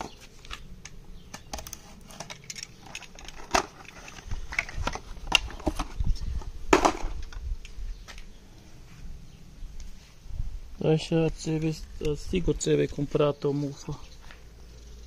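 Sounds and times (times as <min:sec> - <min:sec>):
plastic parts clicking: 0:00.8 - 0:06.0.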